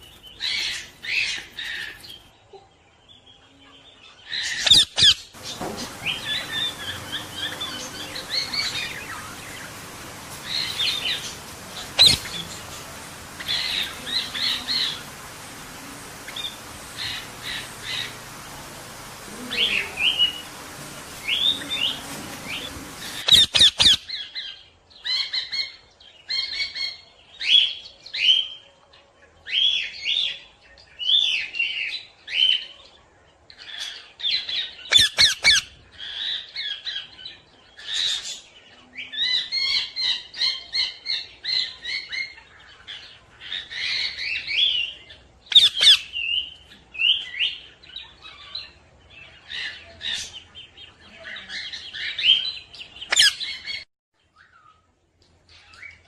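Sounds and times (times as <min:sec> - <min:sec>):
parrots chattering: 0:04.6 - 0:24.0, 0:45.5 - 0:46.1.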